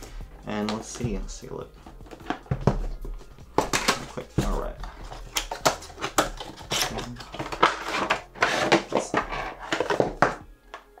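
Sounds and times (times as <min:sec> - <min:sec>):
cardboard scraping rustles: 0:05.9 - 0:10.2.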